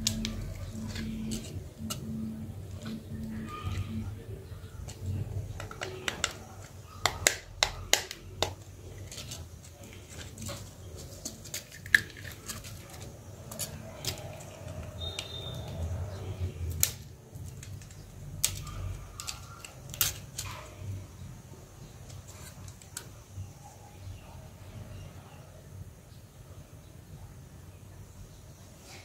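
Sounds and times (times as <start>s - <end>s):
screwdriver clicking on small parts: 4.9s - 9.4s.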